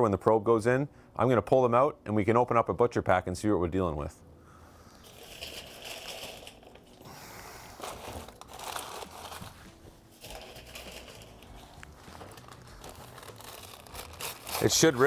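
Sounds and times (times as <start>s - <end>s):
paper crinkling and rustling: 5.1s - 15.0s.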